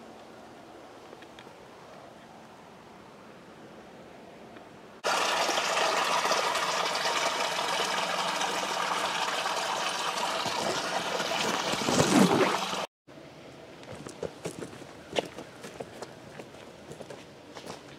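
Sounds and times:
creek running over rocks: 5.0 - 12.9.

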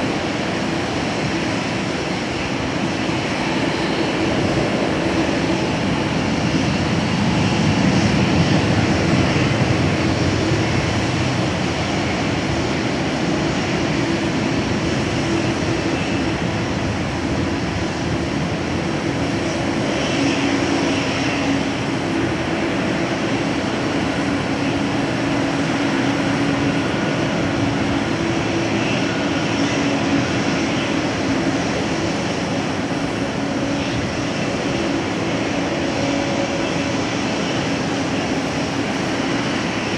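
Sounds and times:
jet engines at taxi power: 0.0 - 39.9.

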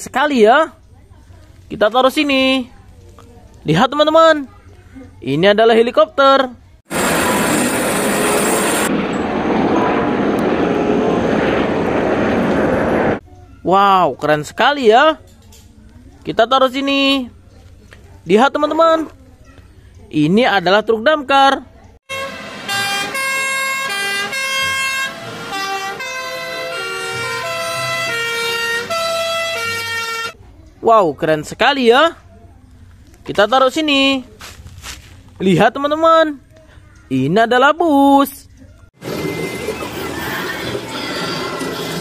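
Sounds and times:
helicopter turbine and rotor: 6.9 - 13.2
two-tone fire engine sirens: 22.1 - 30.4.

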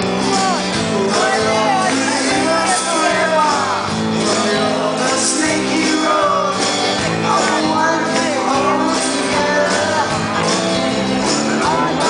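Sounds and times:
drums: 0.0 - 12.0
electric guitar: 0.0 - 12.0
male singer: 0.0 - 12.0
strummed acoustic guitar: 0.0 - 12.0.

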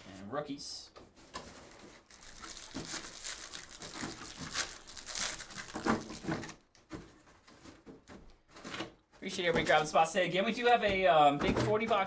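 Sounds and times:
foil wrapper crinkling: 2.0 - 6.6.

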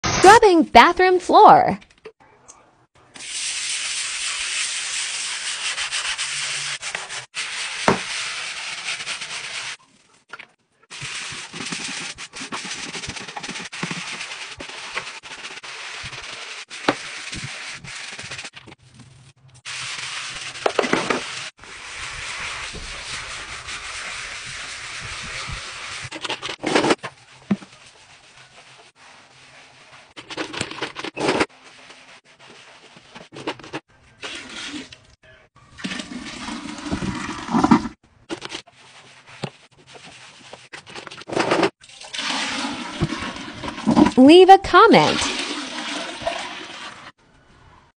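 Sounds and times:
scrub brush scrubbing tiled floor: 3.1 - 35.0, 35.8 - 47.2.

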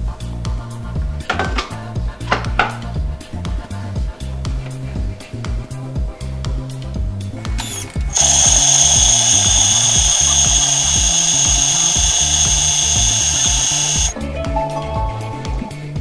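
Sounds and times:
kitchen machine motor whine: 7.6 - 14.1.

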